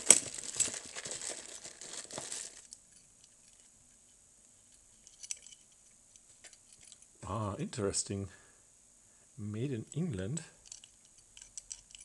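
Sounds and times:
plastic packaging crinkling: 0.0s - 2.8s.

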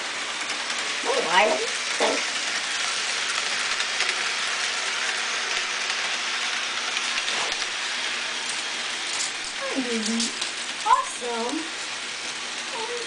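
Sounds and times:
model train wheels rattling on rails: 0.0s - 13.0s.

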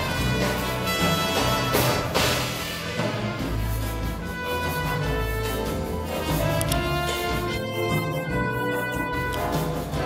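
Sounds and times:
jazz big band playing: 0.0s - 10.0s.

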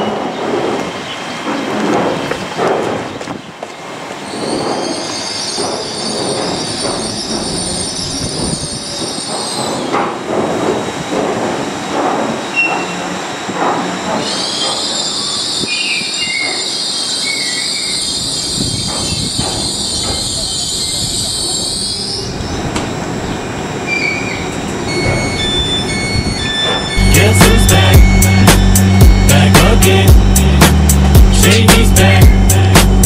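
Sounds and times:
wheels rumbling on rails: 0.0s - 33.0s
train brake squeal: 4.2s - 9.9s, 12.5s - 13.2s, 14.2s - 22.6s, 23.9s - 29.5s.

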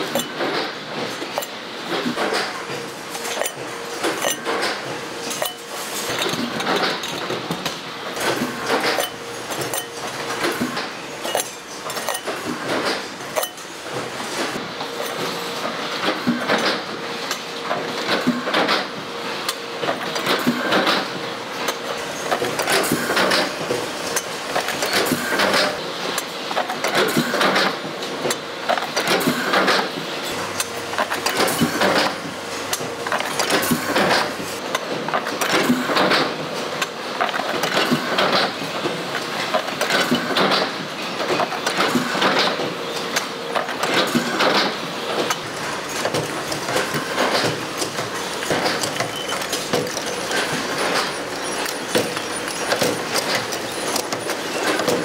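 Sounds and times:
factory machinery running: 0.0s - 55.0s
metallic clicks and clanks: 39.5s - 55.0s.

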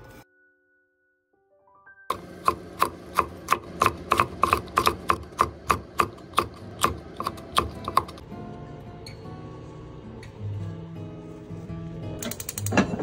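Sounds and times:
knife chopping on wooden board: 2.1s - 8.2s.

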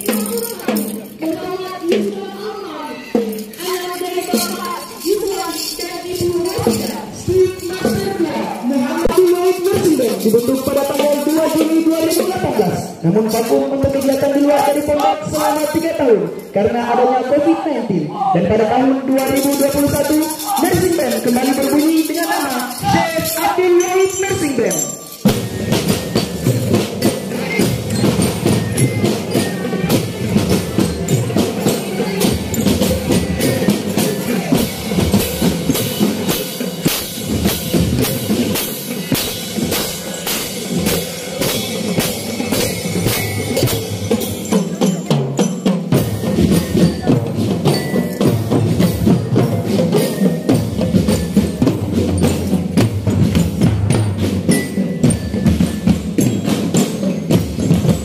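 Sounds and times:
bell lyra melody: 0.0s - 14.2s, 19.2s - 58.0s.

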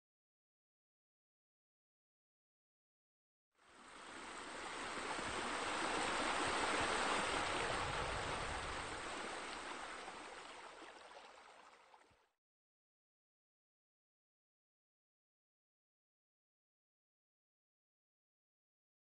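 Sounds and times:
running splashing water: 6.1s - 12.2s.

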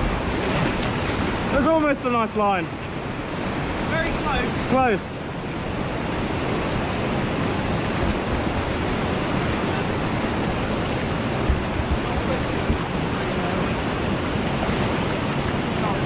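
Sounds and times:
river rapids rushing: 0.0s - 16.0s.

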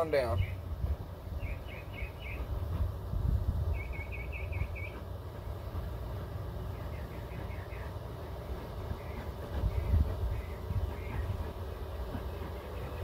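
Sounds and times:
steady low rumble: 0.0s - 13.0s
small bird singing: 0.2s - 0.7s, 1.3s - 2.5s, 3.7s - 5.0s, 6.6s - 13.0s.

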